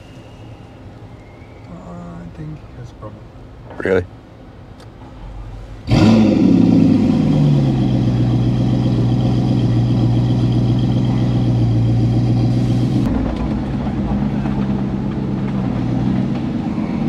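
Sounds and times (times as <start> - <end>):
car engine starting and idling: 4.6 - 17.0.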